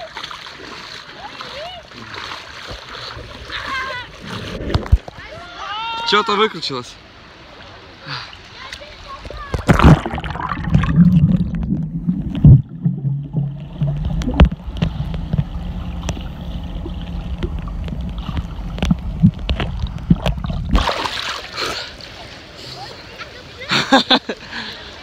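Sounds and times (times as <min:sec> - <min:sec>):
muffled underwater rumble: 0:09.6 - 0:20.8
bubbles rising: 0:09.6 - 0:21.3
steady low hum: 0:09.7 - 0:20.8.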